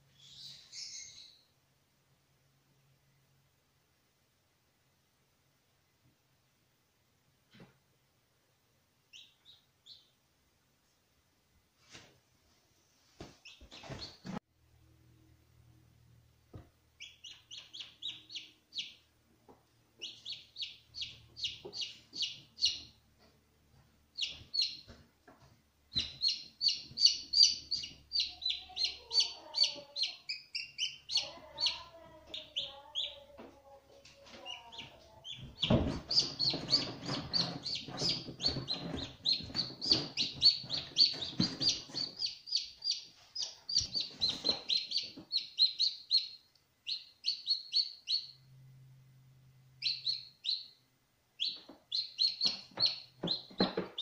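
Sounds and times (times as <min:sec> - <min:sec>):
chicks peeping: 0:09.1 - 0:10.2, 0:13.4 - 0:14.4, 0:16.5 - 0:48.5, 0:49.8 - 0:54.0.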